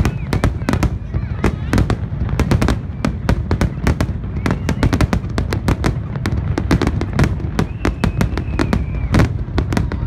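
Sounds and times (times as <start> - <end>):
fireworks bursting: 0.0 - 10.0.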